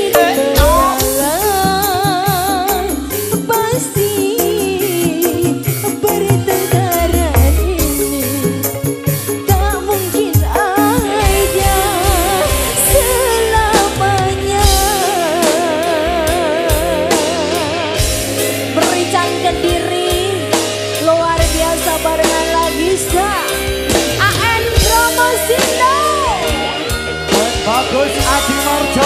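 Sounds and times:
lead melody with heavy vibrato: 0:00.0 - 0:29.0
live band music: 0:00.0 - 0:29.0.

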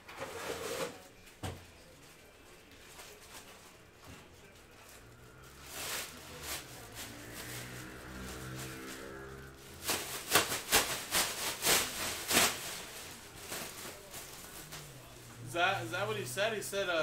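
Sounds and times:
rustling of wrappers being opened: 0:04.6 - 0:15.2.

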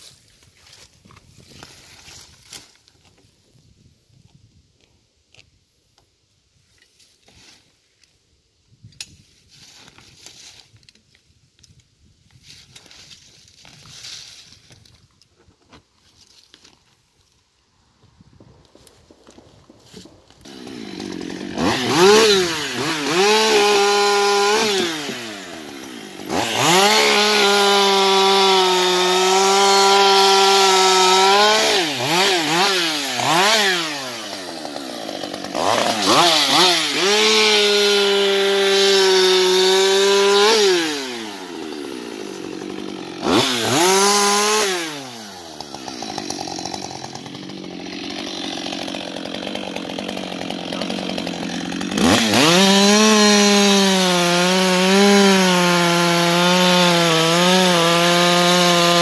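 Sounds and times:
chainsaw cutting log: 0:19.0 - 0:59.0
chainsaw idling: 0:20.4 - 0:59.0
chainsaw revving: 0:20.4 - 0:59.0.

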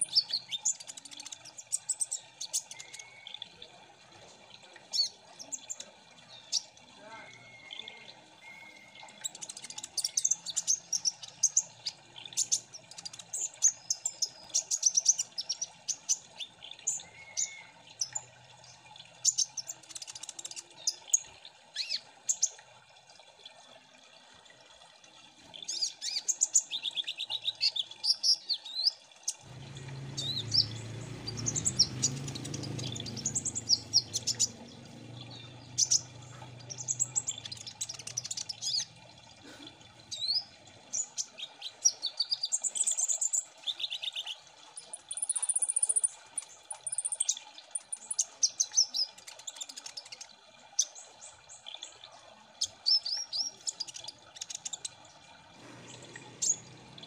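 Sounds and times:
birds chirping and trilling: 0:00.0 - 0:03.7, 0:04.8 - 0:22.6, 0:25.5 - 0:57.0
low rumbling noise: 0:29.5 - 0:36.8.

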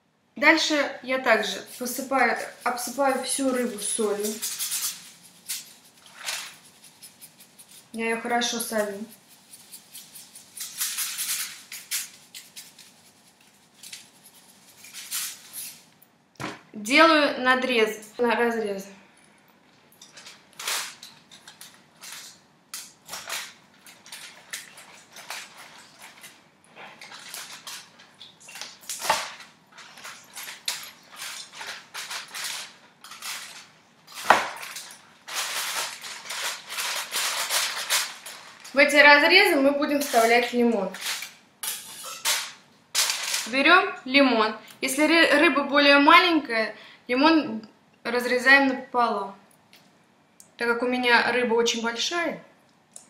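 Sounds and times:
salt shaker rattling: 0:01.5 - 0:15.9, 0:27.1 - 0:38.8.

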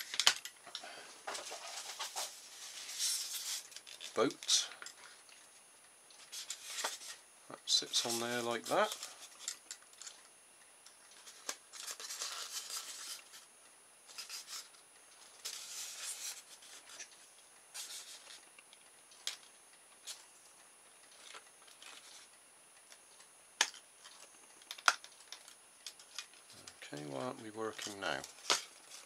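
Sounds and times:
rubbing and scraping on plastic: 0:01.3 - 0:04.3, 0:11.2 - 0:13.4, 0:14.1 - 0:17.1, 0:17.7 - 0:18.4.

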